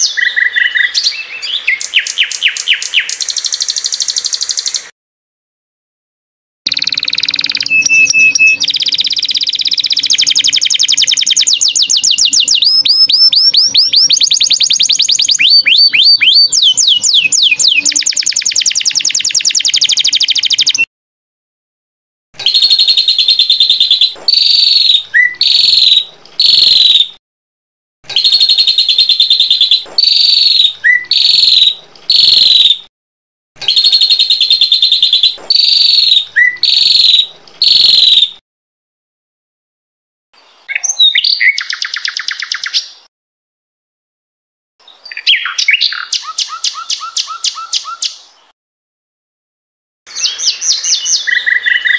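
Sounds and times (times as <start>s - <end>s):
songbird sharp chirping phrases: 0.0s - 4.9s, 6.7s - 20.9s, 22.4s - 27.1s, 28.1s - 32.8s, 33.6s - 38.4s, 40.4s - 43.1s, 44.8s - 48.5s, 50.1s - 51.9s
songbird trilling song: 0.0s - 4.9s, 6.7s - 20.9s, 22.4s - 27.2s, 28.1s - 32.8s, 33.6s - 38.4s, 40.5s - 43.1s, 44.8s - 48.3s, 50.1s - 51.9s.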